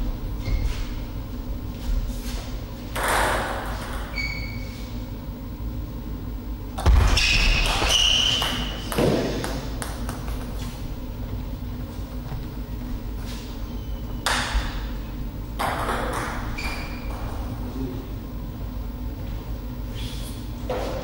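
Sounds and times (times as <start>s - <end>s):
ball bouncing with ringing pings: 6.8s - 9.9s, 15.6s - 17.3s.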